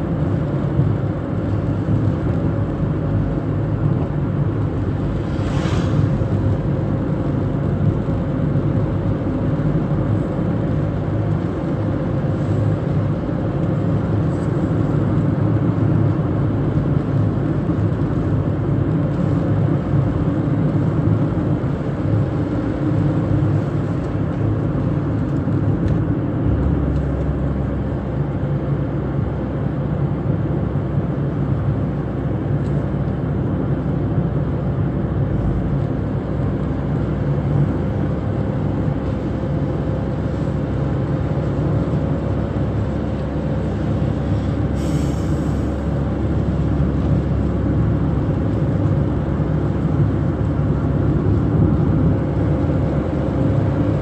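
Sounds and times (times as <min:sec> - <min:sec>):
car engine and tyre road noise: 0:00.0 - 0:54.0
brief hiss: 0:05.2 - 0:06.3, 0:44.4 - 0:45.8.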